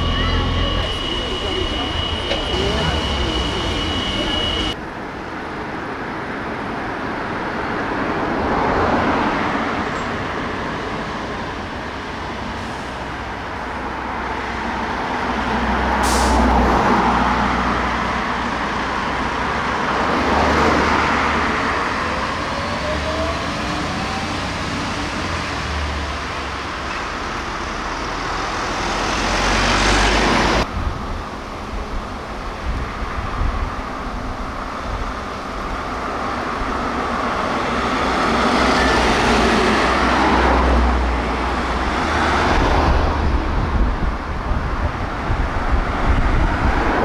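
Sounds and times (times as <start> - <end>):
fire engine driving by: 0.0 - 5.5, 10.6 - 30.7
road traffic passing: 0.0 - 47.0.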